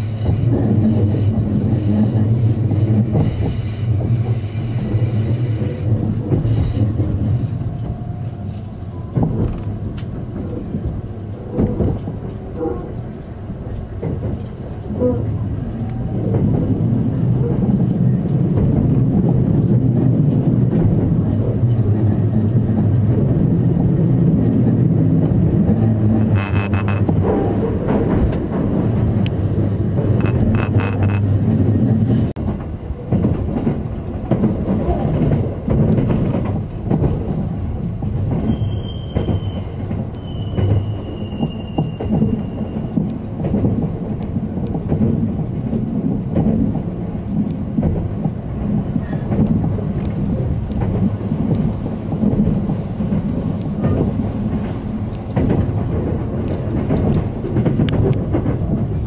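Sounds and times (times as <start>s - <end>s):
train rumbling inside carriage: 0.0s - 59.0s
faint high squeal: 38.5s - 42.9s.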